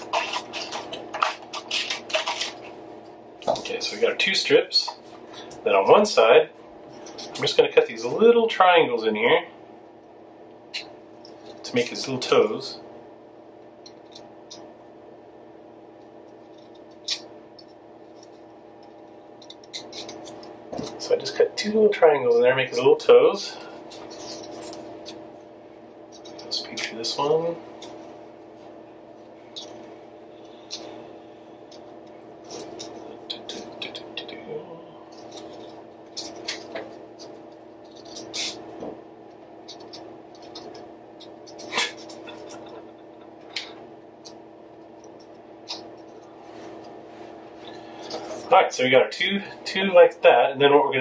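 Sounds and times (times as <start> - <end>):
scissors snipping paper: 0.0 - 2.6
steady low hum: 0.0 - 51.0.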